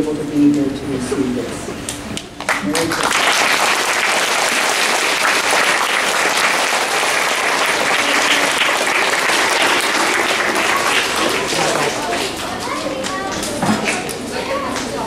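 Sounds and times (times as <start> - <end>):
children applauding: 2.4 - 14.1.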